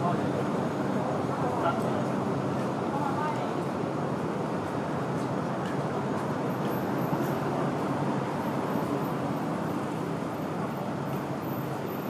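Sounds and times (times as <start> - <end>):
city road traffic: 0.0 - 12.0.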